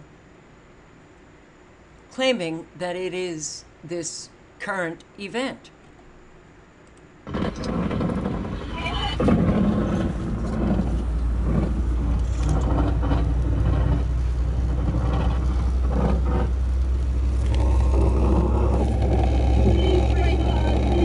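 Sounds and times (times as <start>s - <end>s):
wind-driven rain and spray: 7.2s - 21.0s
wind buffeting microphone: 7.3s - 21.0s.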